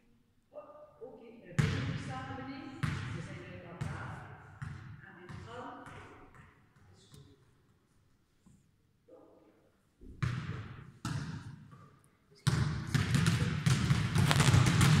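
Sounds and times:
basketballs bouncing on gym floor: 0:01.6 - 0:06.6, 0:10.0 - 0:11.8, 0:12.4 - 0:15.0.

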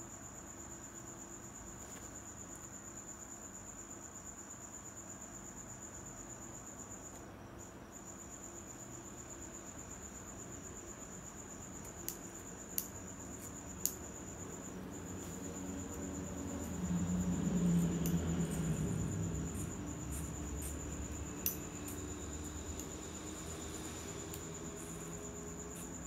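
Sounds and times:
cricket trilling: 0:00.0 - 0:26.0
scissors snipping hair: 0:21.4 - 0:22.1.

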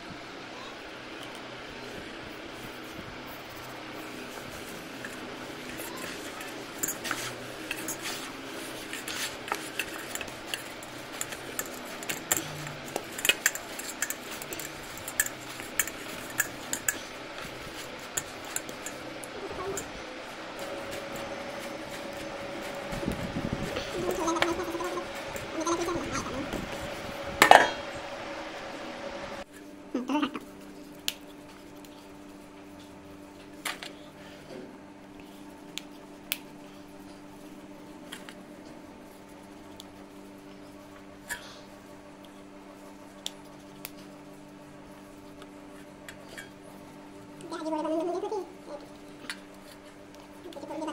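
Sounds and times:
steady low hum: 0:00.0 - 0:50.9
dough kneaded on metal plate: 0:02.4 - 0:27.9
clicks and taps on steel plate: 0:09.7 - 0:17.0.

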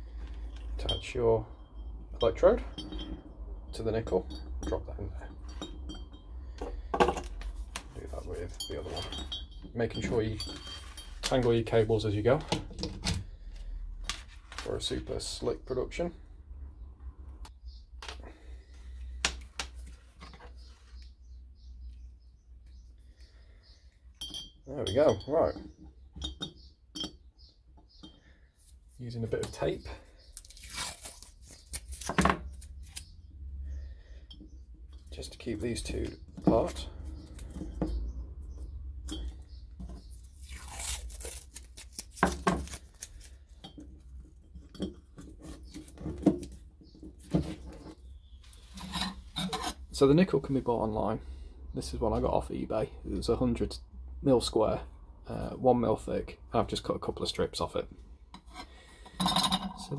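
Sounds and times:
glass and metal clinking: 0:00.4 - 0:07.4, 0:08.1 - 0:11.8, 0:24.1 - 0:28.3, 0:39.0 - 0:39.6, 0:59.0 - 0:59.9
adhesive tape tearing: 0:30.4 - 0:33.1, 0:40.4 - 0:43.4.

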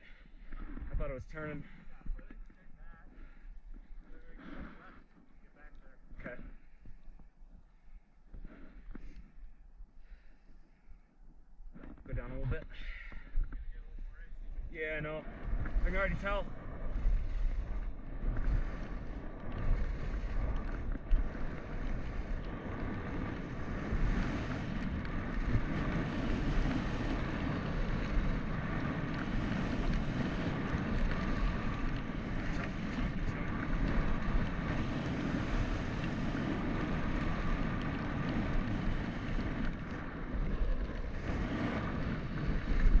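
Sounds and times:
skis scraping over snow: 0:00.0 - 0:06.9, 0:08.3 - 0:09.5, 0:11.7 - 0:43.0
wind buffeting microphone: 0:12.1 - 0:43.0.

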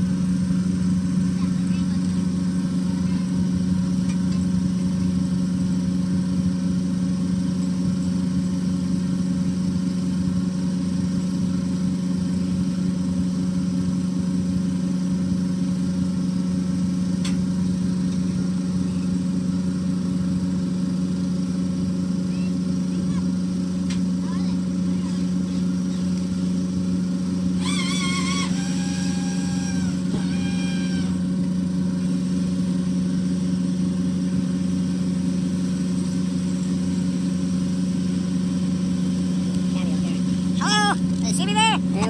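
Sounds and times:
boat engine running: 0:00.0 - 0:42.0.

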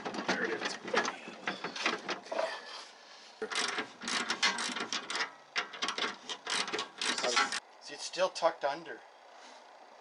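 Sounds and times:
ratchet wrench clicking: 0:03.4 - 0:07.6.

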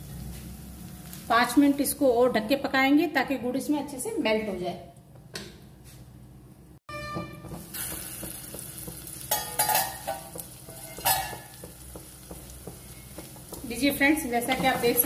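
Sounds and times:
chutney sizzling in oil: 0:00.0 - 0:02.2, 0:07.5 - 0:15.0.

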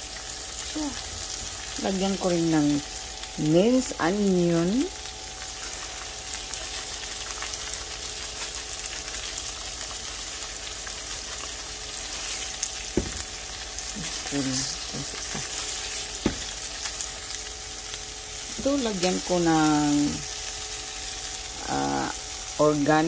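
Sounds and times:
beans sizzling in a skillet: 0:00.0 - 0:23.0.

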